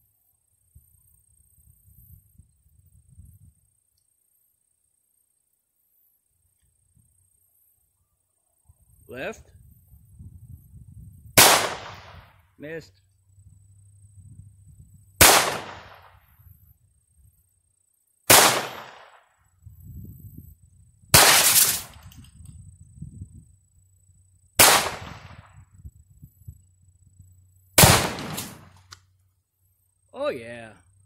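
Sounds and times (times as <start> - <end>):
pistol shots with echo: 11.4 - 12.3, 15.2 - 16.2, 18.3 - 19.2, 21.2 - 21.9, 24.6 - 25.5, 27.8 - 28.8.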